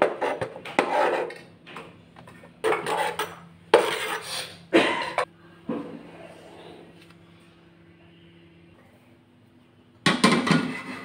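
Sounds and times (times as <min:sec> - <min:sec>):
knife scraping cutting board: 0:00.0 - 0:01.4.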